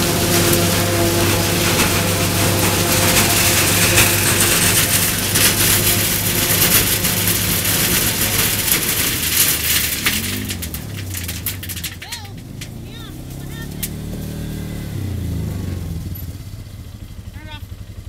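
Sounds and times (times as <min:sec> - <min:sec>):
forage chopper rushing hiss: 0:00.0 - 0:08.9
tractor engine drone: 0:00.0 - 0:18.0.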